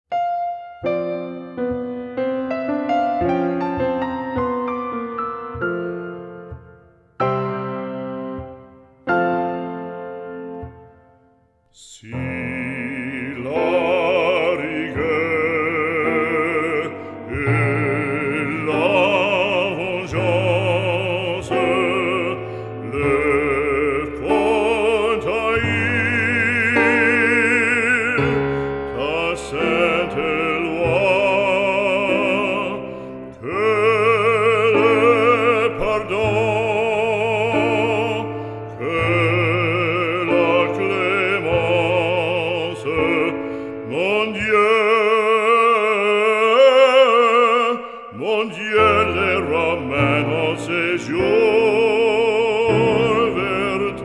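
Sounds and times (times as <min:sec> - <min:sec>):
instrumental accompaniment: 0:00.1 - 0:54.0
operatic voice singing: 0:11.7 - 0:54.0.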